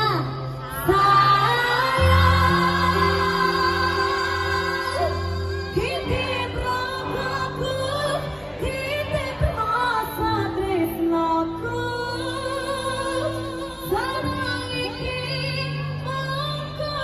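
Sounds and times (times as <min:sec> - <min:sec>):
woman singing into microphone: 0:00.0 - 0:17.0
band playing: 0:00.7 - 0:12.4.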